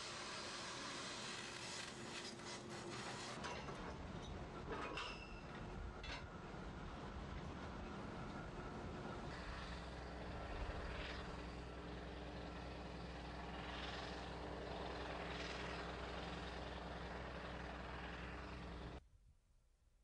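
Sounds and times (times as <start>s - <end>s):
drilling rig engine drone: 3.7s - 19.0s.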